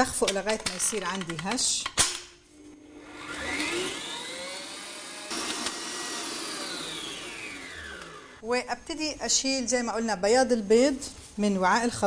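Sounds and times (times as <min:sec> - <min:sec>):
stand mixer motor whining: 0:02.8 - 0:08.4.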